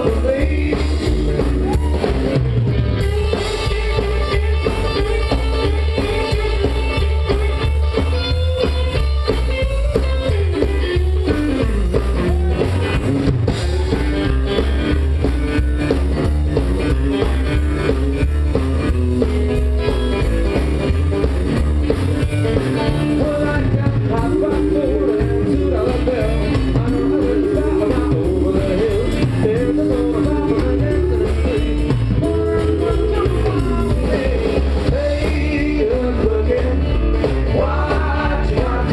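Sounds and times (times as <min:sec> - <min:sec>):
man singing: 0:00.0 - 0:02.2, 0:03.0 - 0:07.8, 0:09.9 - 0:14.7, 0:22.9 - 0:38.9
country rock band playing: 0:00.0 - 0:38.9
drum kit: 0:00.0 - 0:38.9
electric guitar: 0:00.0 - 0:38.9
upright double bass: 0:00.0 - 0:38.9.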